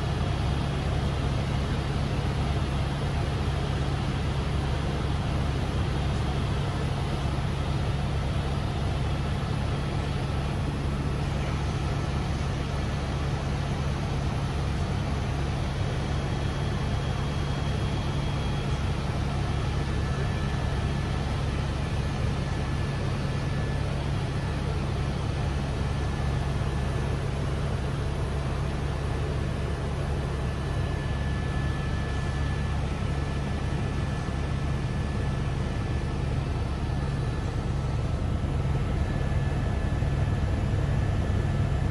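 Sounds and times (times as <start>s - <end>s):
faint whining tones: 14.1s - 41.9s.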